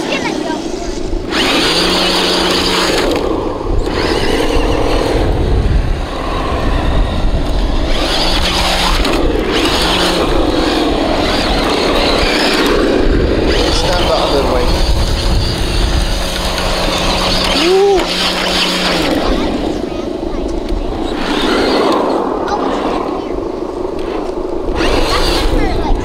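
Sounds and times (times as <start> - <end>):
electric motor whining: 0.0 - 26.0
rough rushing noise: 0.0 - 26.0.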